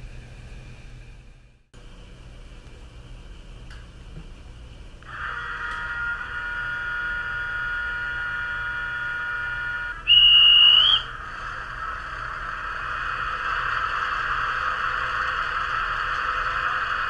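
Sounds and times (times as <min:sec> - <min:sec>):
diesel locomotive sound drone: 0:00.0 - 0:17.0
loud high whistle tone: 0:05.1 - 0:11.5.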